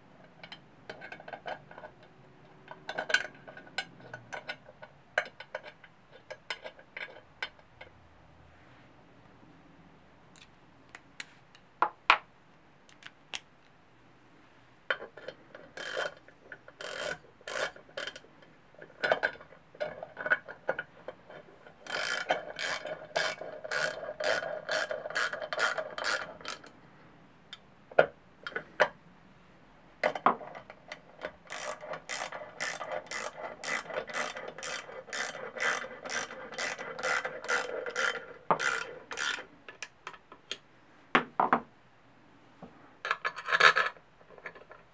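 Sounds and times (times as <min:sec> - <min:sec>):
ratchet wrench clicking: 0:15.8 - 0:16.2, 0:16.8 - 0:18.2, 0:21.8 - 0:26.7, 0:31.5 - 0:39.9.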